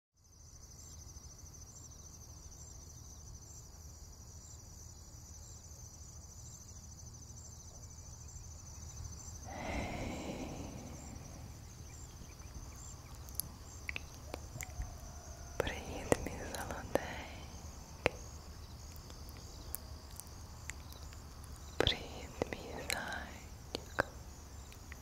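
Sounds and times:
low hum: 9.5 - 12.4.

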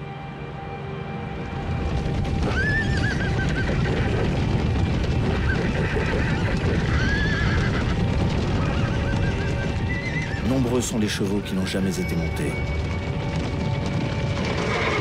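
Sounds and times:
background music: 0.0 - 15.0
galloping hooves rumbling: 1.2 - 15.0
horses whinnying: 2.3 - 10.9, 14.4 - 15.0.

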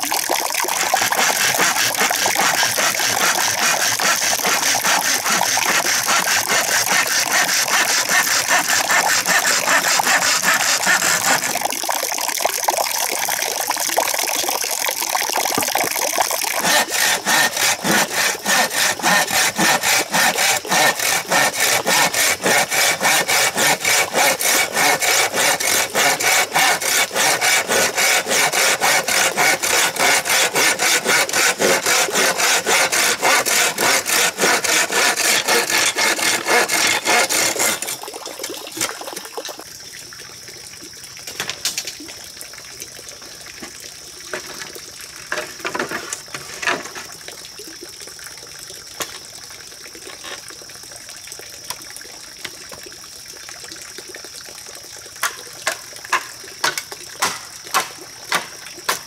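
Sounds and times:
hand saw cutting bamboo: 0.7 - 11.7, 16.6 - 38.0, 45.3 - 47.1, 55.6 - 59.0.

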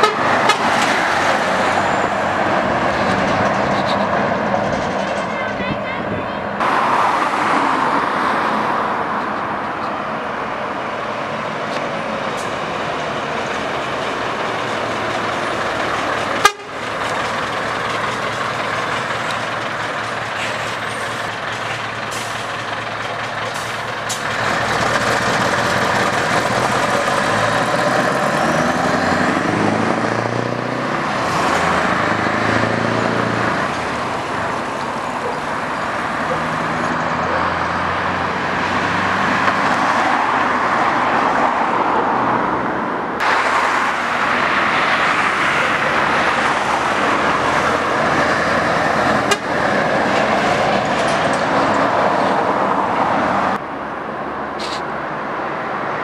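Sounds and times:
truck diesel engine driving past: 10.2 - 40.0, 43.2 - 53.6
sharp click: 54.6 - 54.9.

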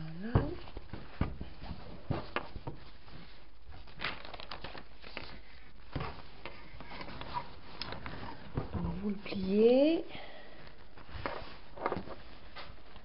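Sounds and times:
fabric rustling: 0.2 - 13.0
paper sheet handled: 1.0 - 8.7.

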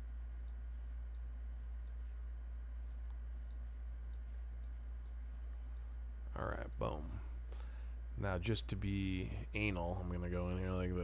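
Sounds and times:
low electrical hum: 0.0 - 11.0
computer mouse clicks: 0.3 - 6.0.

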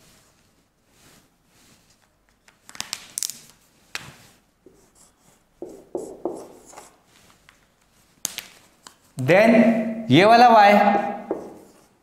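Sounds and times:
marker scratching on whiteboard: 4.6 - 7.2, 11.0 - 12.0.

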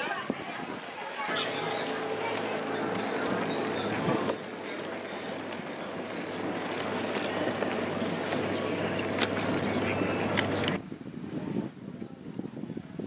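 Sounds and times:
wheels clicking and rattling: 0.0 - 10.8
bicycle rolling over wooden boards: 0.6 - 10.8.

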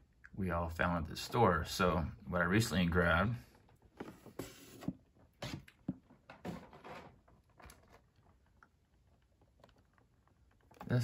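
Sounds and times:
plastic packaging knocks and rustles: 5.8 - 8.0.

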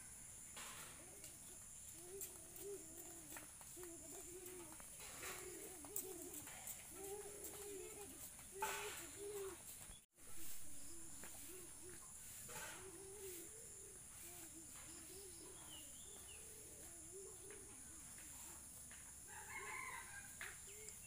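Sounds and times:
chickens clucking: 0.6 - 9.7
rooster crowing: 19.3 - 20.8.

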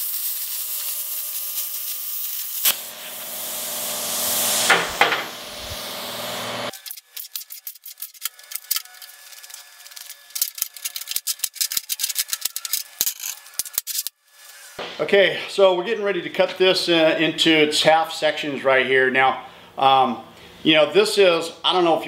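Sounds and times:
plasma cutter hissing: 0.0 - 6.9
steel pieces clinking: 6.7 - 14.6.

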